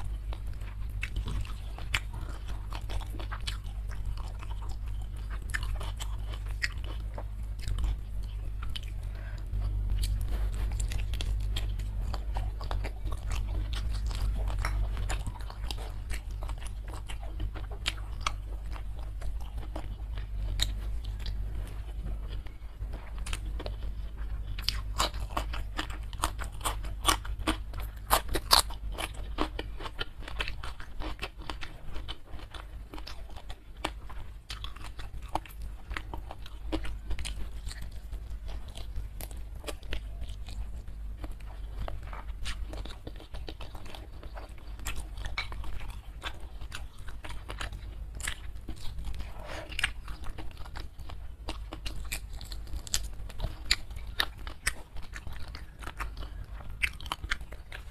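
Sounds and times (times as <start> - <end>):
chewing fried chicken wing: 0.0 - 57.9.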